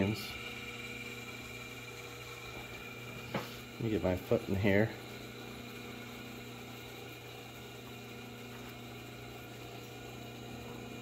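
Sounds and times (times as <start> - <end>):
electric motor hum: 0.0 - 11.0.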